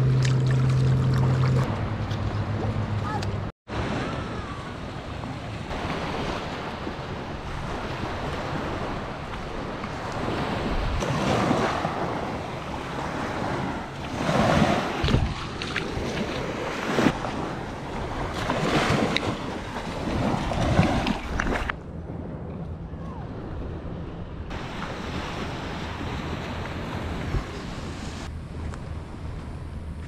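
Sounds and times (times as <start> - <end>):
small waves washing on shore: 3.0 - 21.8, 24.5 - 28.3
wind buffeting microphone: 3.9 - 30.0.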